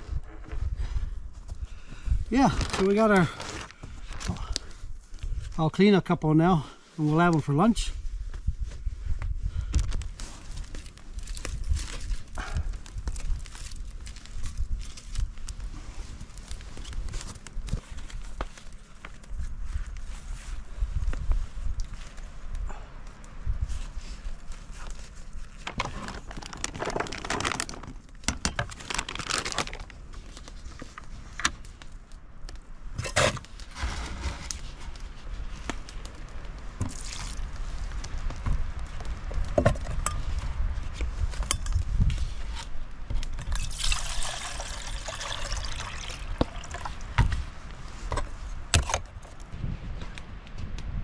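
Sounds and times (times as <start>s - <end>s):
water pouring into metal pan: 43.6s - 46.8s.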